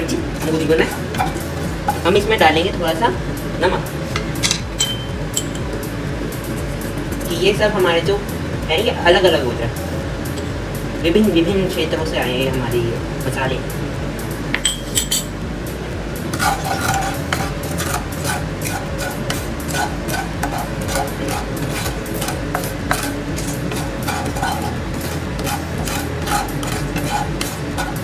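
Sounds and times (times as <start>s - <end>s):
spatula scraping dry spices in pan: 16.3s - 28.0s.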